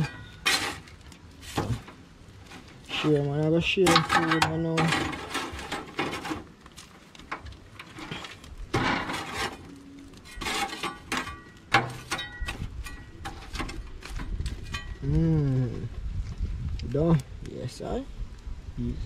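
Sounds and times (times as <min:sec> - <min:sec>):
metal spatula scraping grill grate: 0:00.0 - 0:15.1.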